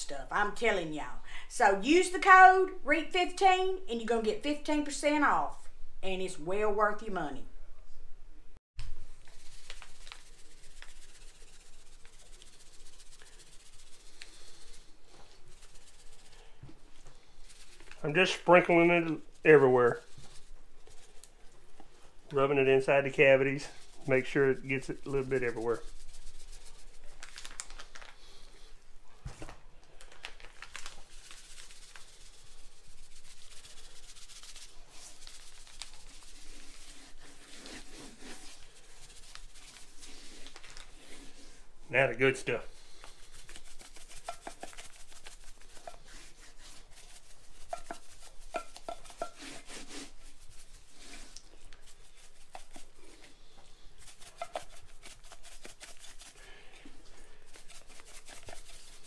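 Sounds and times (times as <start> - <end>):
seasoning granules sprinkling: 9.1 - 21.5, 23.1 - 28.6, 30.4 - 41.5, 42.7 - 59.0.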